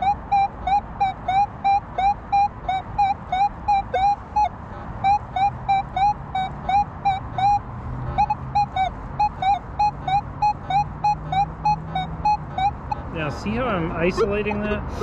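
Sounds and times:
metal detector beeps: 0.0 - 4.5.

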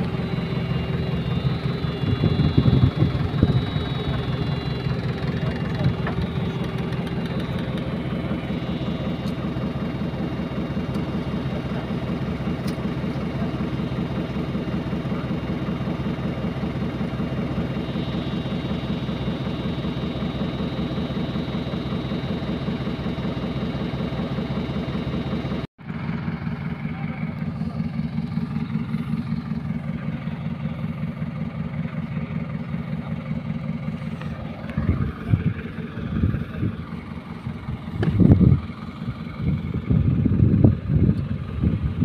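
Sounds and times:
diesel engine running: 0.0 - 42.0
high engine whine: 0.0 - 42.0.

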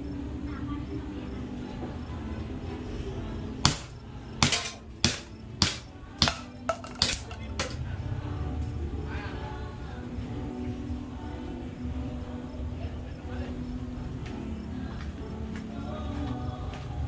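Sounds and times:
pellets striking plastic bottles: 3.6 - 7.8.

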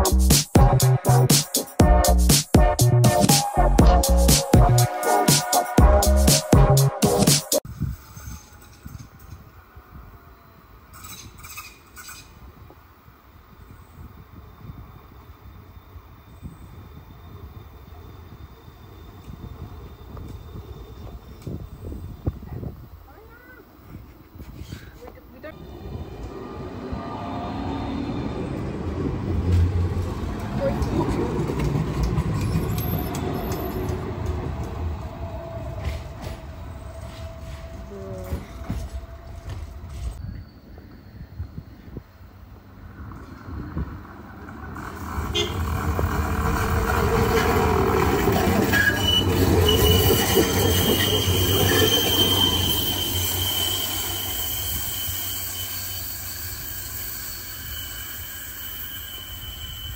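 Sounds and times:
tram rumbling on rails: 0.0 - 59.9
high-pitched wheel squeal: 44.7 - 59.9.

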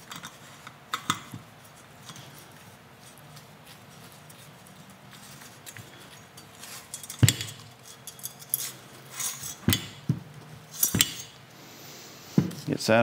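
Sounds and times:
wires rattling against metal bar: 4.3 - 10.1, 10.7 - 11.4.

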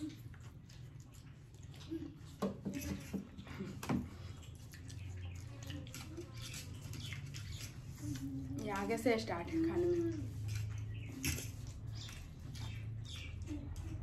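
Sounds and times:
slurping and chewing noodles: 0.0 - 8.7.

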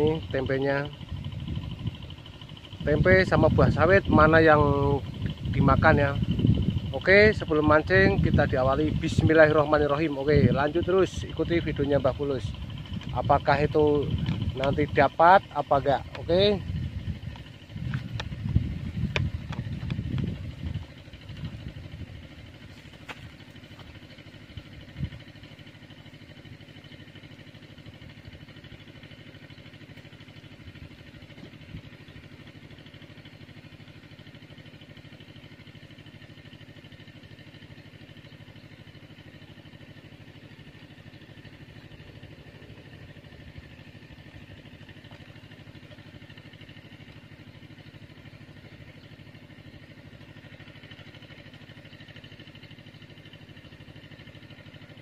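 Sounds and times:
small engine humming: 0.0 - 55.0.

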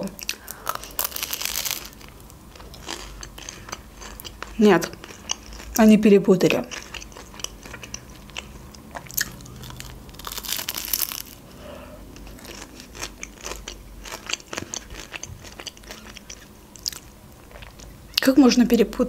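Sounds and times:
biting and chewing crisp pastry: 0.0 - 18.2
crunch of a bite: 0.2 - 2.1, 9.0 - 11.4.

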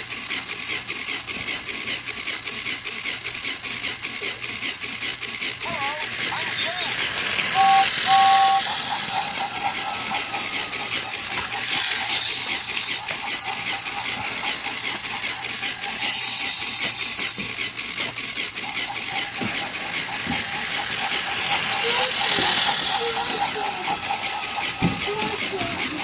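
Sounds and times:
small motor running: 0.0 - 26.0
fine rapid clicking: 0.1 - 26.0
two-note whistle: 7.6 - 8.6.

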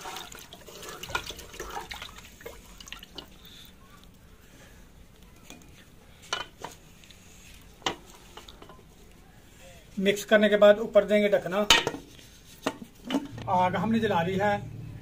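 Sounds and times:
liquid sloshing: 0.0 - 3.4
pot being handled: 5.4 - 9.0.

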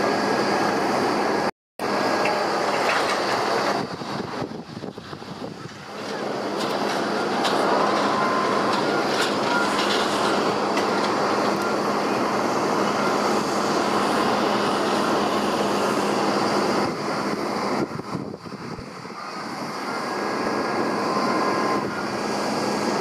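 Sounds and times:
jet engines roaring: 0.0 - 23.0.

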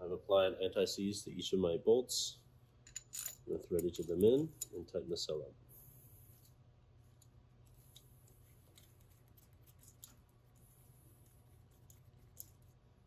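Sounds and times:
faint low hum: 0.0 - 13.0
small metallic clicks: 11.8 - 12.6.

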